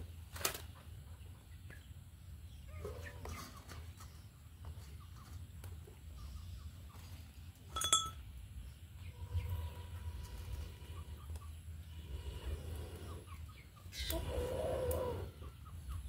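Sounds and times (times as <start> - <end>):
metal clink: 7.7 - 8.2.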